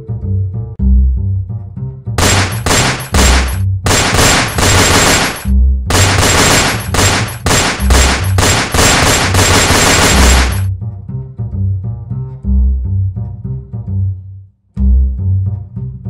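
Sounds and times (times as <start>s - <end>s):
music with plucked bass line: 0.0s - 2.2s, 10.7s - 16.0s
rapid pistol shots: 2.2s - 10.7s.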